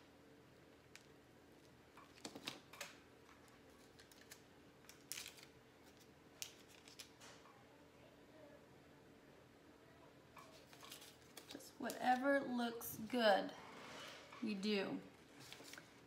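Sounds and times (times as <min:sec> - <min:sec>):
plastic bag crinkling: 0:03.6 - 0:07.2.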